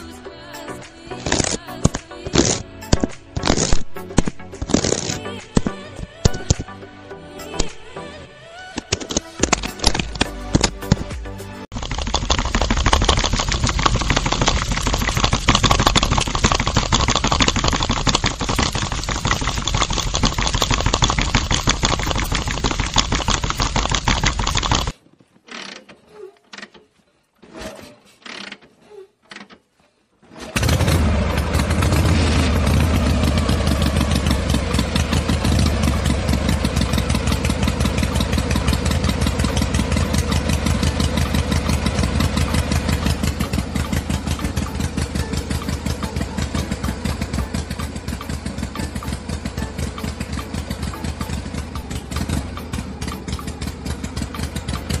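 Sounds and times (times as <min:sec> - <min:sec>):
toy motor rattling whir: 0:01.2 - 0:05.3, 0:11.7 - 0:25.8, 0:33.4 - 0:55.0.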